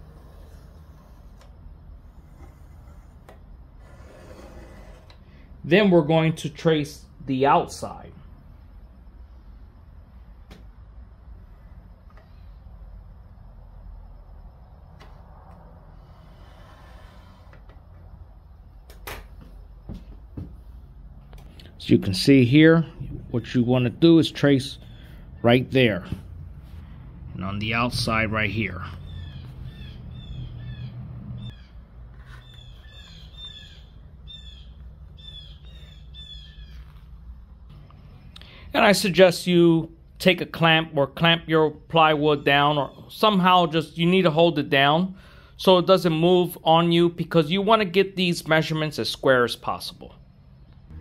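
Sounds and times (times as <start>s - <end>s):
pen scratching on plywood: 0.0s - 5.2s
steady low hum: 0.0s - 41.1s, 49.7s - 51.0s
small birds chirping: 28.8s - 37.2s.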